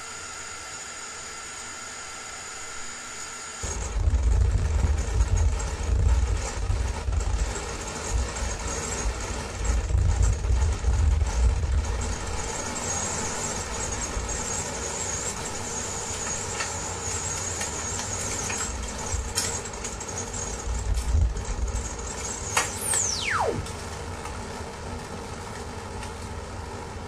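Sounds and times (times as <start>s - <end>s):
fluttering low rumble: 3.6s - 12.6s, 20.7s - 24.0s
droning held tones: 20.7s - 24.0s.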